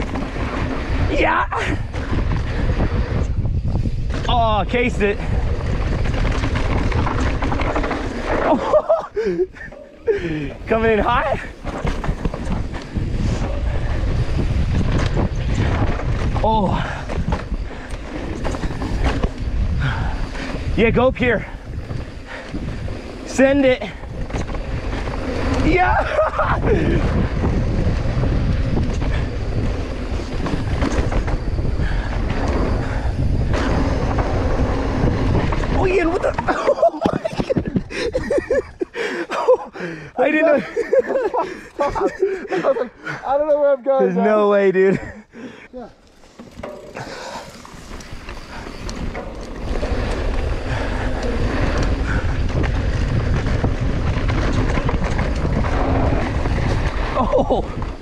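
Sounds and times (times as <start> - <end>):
bike clattering over bumps: 0.0 - 39.8, 45.7 - 58.0
wind buffeting microphone: 0.0 - 43.3, 45.2 - 58.0
tyres rumbling on dirt trail: 0.0 - 58.0.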